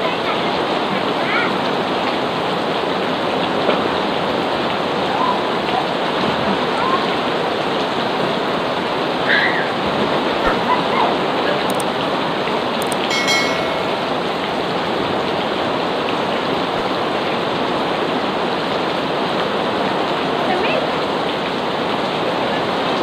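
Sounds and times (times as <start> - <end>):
heavy rain on pool: 0.0 - 23.0.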